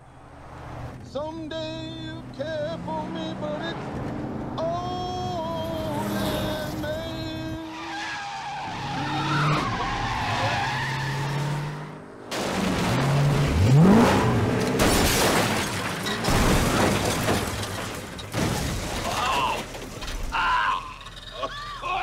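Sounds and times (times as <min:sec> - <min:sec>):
skidding through dirt: 0:00.1 - 0:22.0
van engine revving: 0:00.3 - 0:07.6, 0:10.9 - 0:15.6
vehicle crash into brush: 0:12.3 - 0:20.4.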